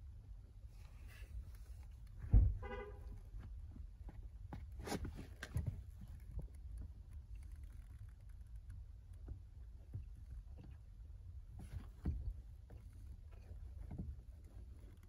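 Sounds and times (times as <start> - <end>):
foot thumping on pedal: 2.2 - 6.9, 11.5 - 15.0.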